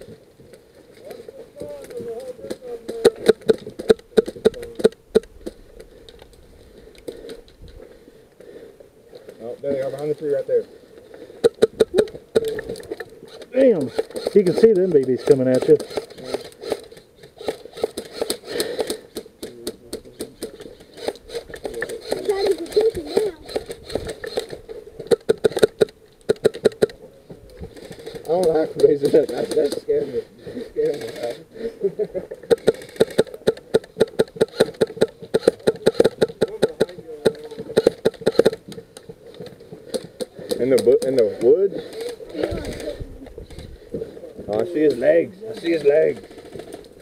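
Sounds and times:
airsoft gunfire clicks and snaps: 0:01.0 - 0:07.8, 0:11.4 - 0:29.9, 0:32.5 - 0:43.6.

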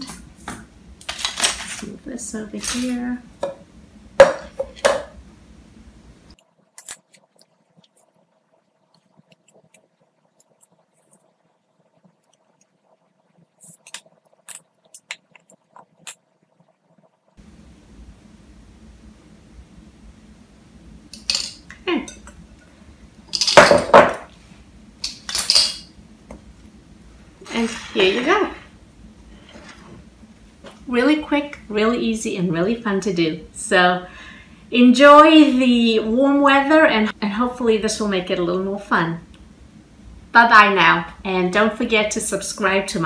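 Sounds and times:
kitchen things clicking and clattering: 0:01.0 - 0:03.6, 0:21.2 - 0:22.4, 0:23.3 - 0:24.3, 0:25.0 - 0:25.9.

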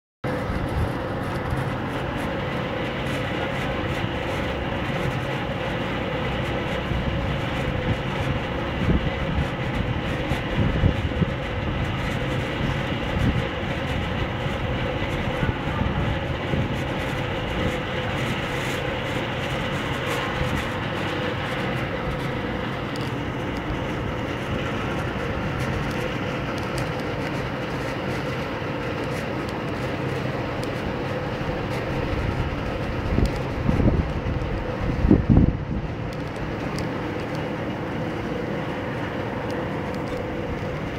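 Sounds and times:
background drone: 0:00.2 - 0:40.9
constant hum: 0:00.2 - 0:40.9
low rumbles: 0:00.2 - 0:40.9.

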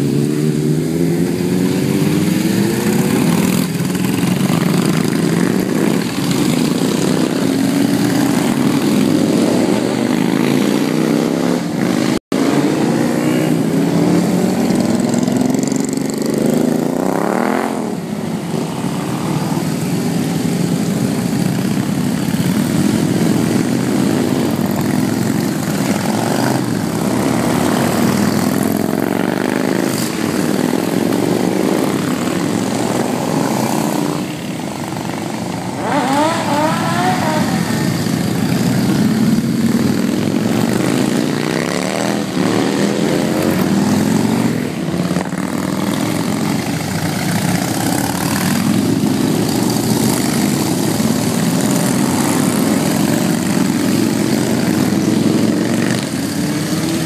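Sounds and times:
motorcycle engine revving: 0:00.0 - 0:57.0
motorcycles riding past: 0:00.0 - 0:57.0.

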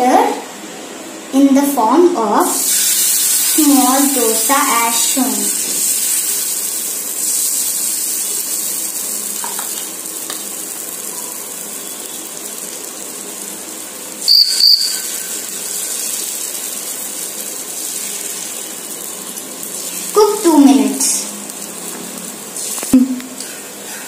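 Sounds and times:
hot griddle hissing: 0:02.4 - 0:24.0.

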